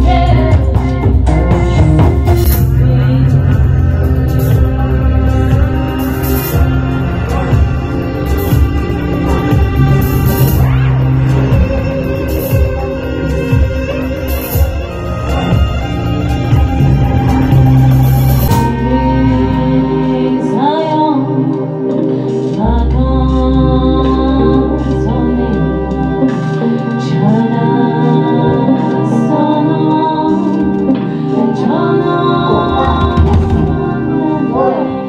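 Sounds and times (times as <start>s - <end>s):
woman singing: 0.0s - 11.8s, 18.5s - 35.0s
deep bass note: 0.0s - 20.3s
sustained drone chords: 0.0s - 35.0s.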